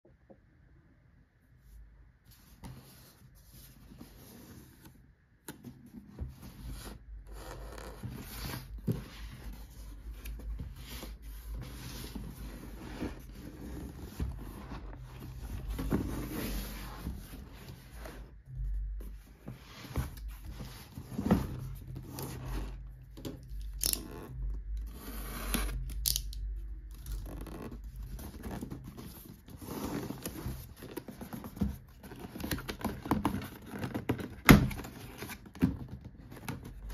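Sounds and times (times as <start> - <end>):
cardboard box scraping on table: 6.3 - 18.3.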